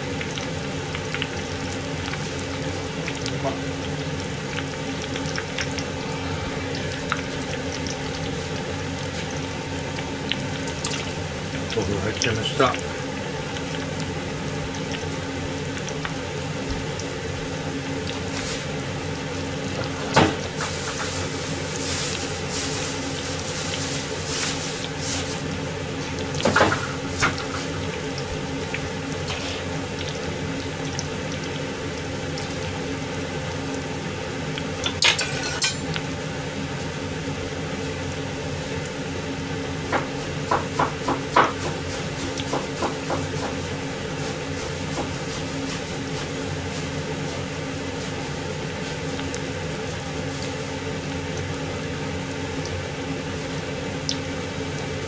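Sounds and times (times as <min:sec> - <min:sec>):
kitchen hum: 0:00.0 - 0:55.0
dishes and metal utensils clinking: 0:35.0 - 0:35.9.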